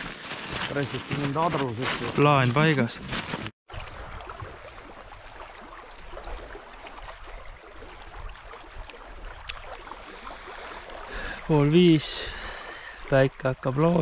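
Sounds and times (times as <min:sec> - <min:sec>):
faint clicks and splashes: 0:03.7 - 0:11.8.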